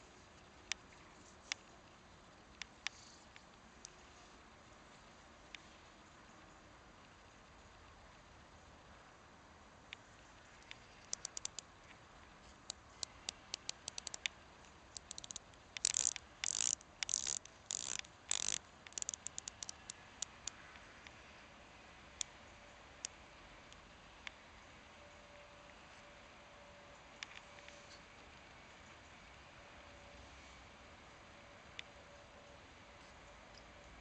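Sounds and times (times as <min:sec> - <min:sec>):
watch bezel ratcheting clicks: 0:10.7 - 0:11.6, 0:12.6 - 0:14.3, 0:14.9 - 0:20.6.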